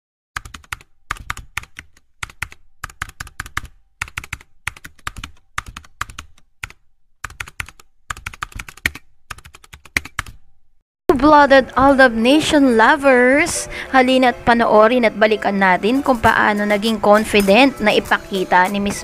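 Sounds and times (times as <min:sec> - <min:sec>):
computer keyboard typing: 0:00.4 - 0:10.5.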